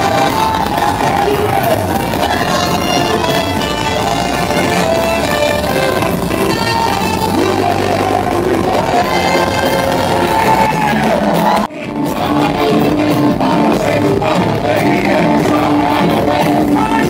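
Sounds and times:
male group singing gospel: 0.0 - 17.0.

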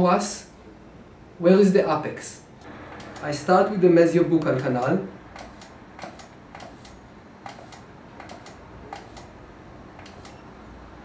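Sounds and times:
low background noise: 0.0 - 11.0
faint irregular clicks: 5.4 - 9.3.

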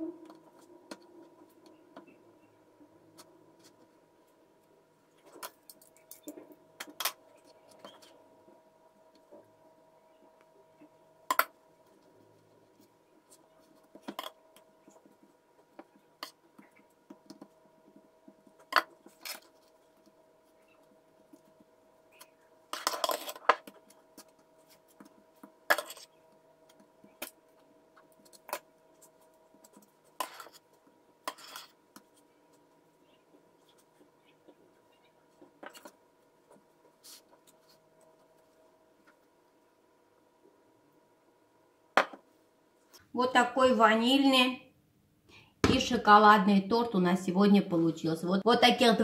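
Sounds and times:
faint steady hum: 0.0 - 49.0
metal spatula scraping bowl: 31.2 - 31.8.

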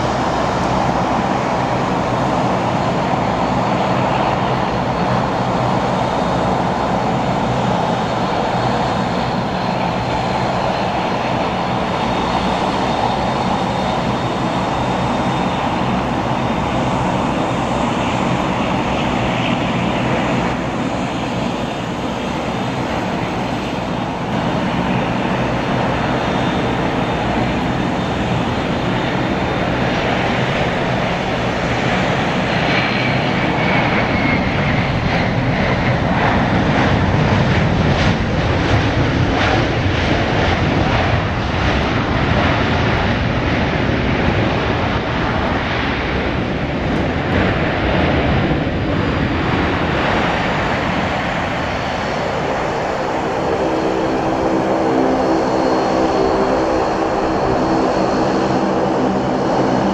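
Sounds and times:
jet engine rumble with whine: 0.0 - 59.9.

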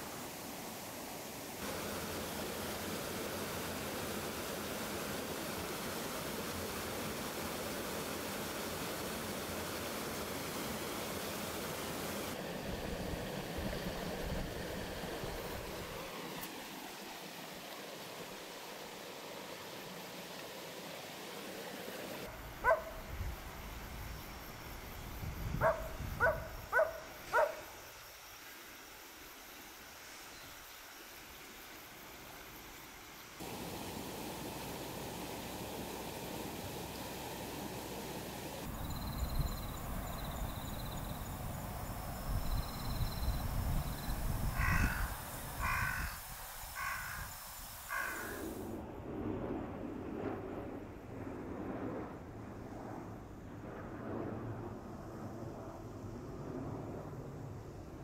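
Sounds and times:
dogs barking: 22.6 - 23.0, 25.6 - 27.6
crow cawing: 44.6 - 46.2, 46.8 - 47.3, 47.9 - 48.5.

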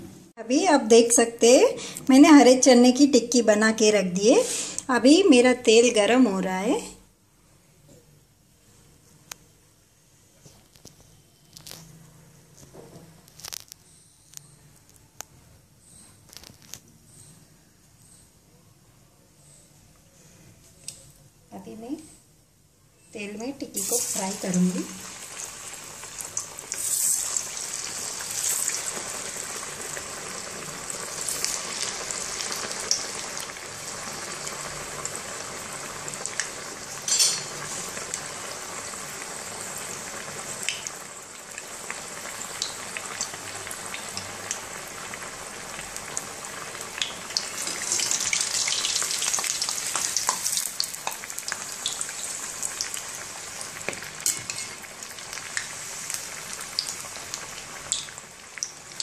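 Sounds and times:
deep-frying sizzle: 0.0 - 6.9, 23.1 - 59.0.

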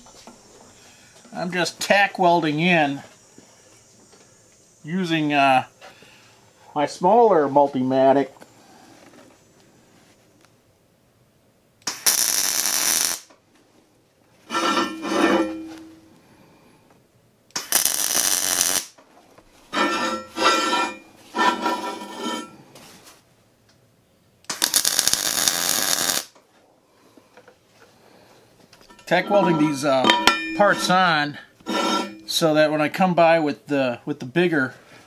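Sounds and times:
welding arc crackling: 11.8 - 13.3, 17.5 - 19.0, 24.5 - 26.4.

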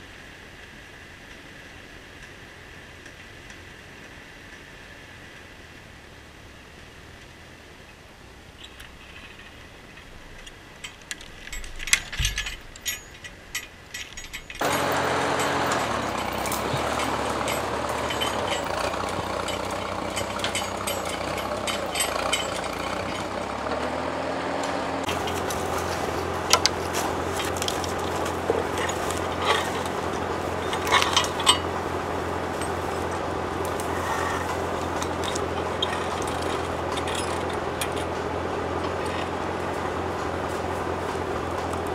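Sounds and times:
metallic clicks and knocks: 8.6 - 23.9, 24.6 - 39.4
atv engine running: 14.6 - 41.9.

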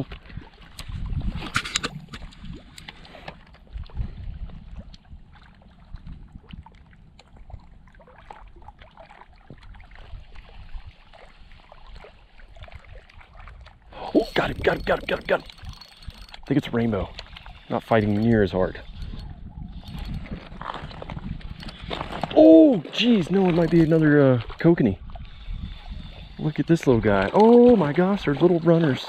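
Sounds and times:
wind buffeting microphone: 0.0 - 2.9, 3.6 - 8.7, 12.5 - 28.4
small waves lapping: 0.0 - 29.0
waves lapping on rocky shore: 21.7 - 29.0.

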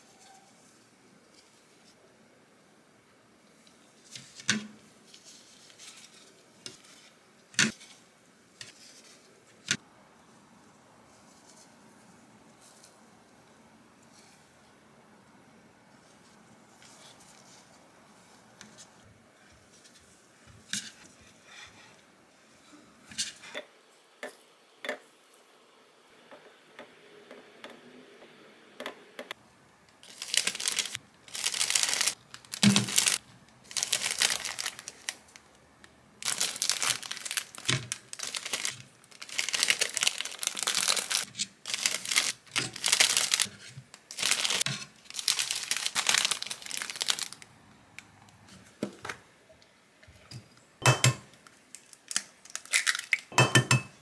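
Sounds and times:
plastic bags crinkling: 30.0 - 35.6, 36.2 - 47.5, 51.4 - 53.3
egg cracking: 51.3 - 53.5.

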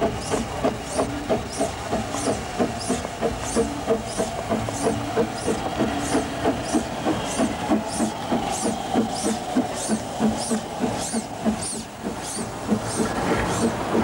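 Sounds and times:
steam hissing: 0.0 - 14.0
steam locomotive exhaust beats: 0.0 - 14.0.

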